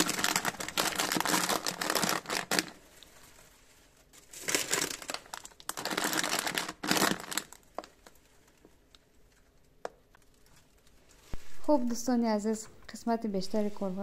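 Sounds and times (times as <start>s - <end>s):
plastic wrappers crinkling: 0.0s - 11.3s.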